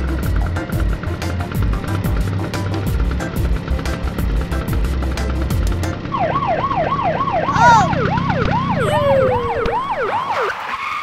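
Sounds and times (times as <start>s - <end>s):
police siren: 6.1s - 11.0s.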